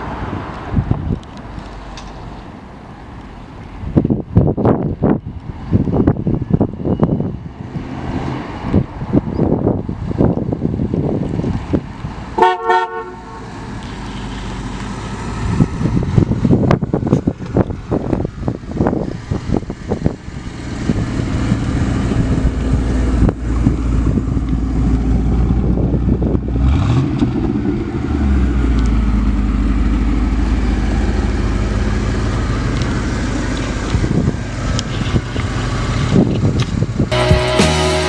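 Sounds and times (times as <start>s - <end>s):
car engine driving off: 13.1s - 38.0s
music: 37.1s - 38.0s.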